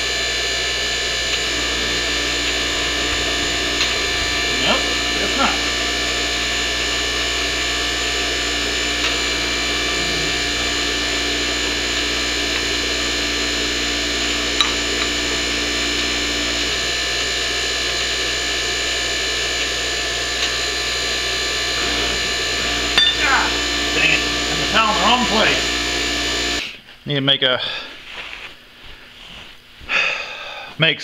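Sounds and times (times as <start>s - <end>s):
hydraulic pump humming: 0.0s - 26.8s.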